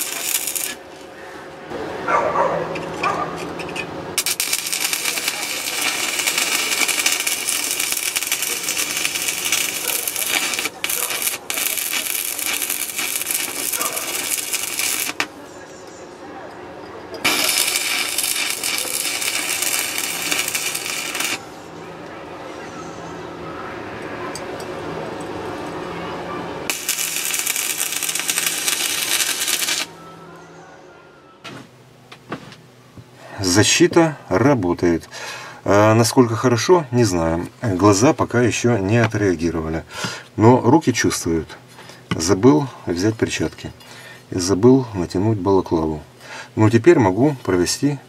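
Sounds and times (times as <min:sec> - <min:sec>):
welding arc crackling and sizzling: 0:00.0 - 0:00.8, 0:04.2 - 0:15.3, 0:17.2 - 0:21.5, 0:26.7 - 0:30.0.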